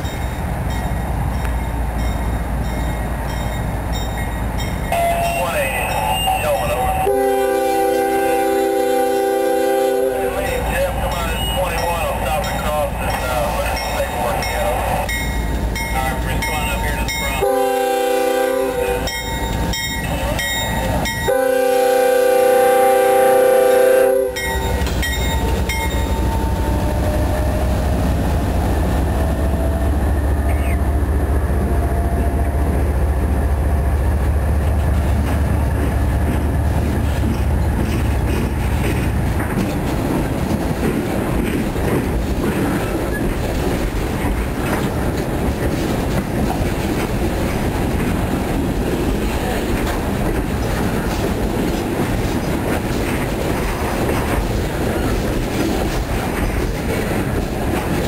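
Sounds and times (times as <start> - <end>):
diesel locomotive rumble: 0.0 - 58.0
train wheels clacking over rail joints: 34.6 - 58.0.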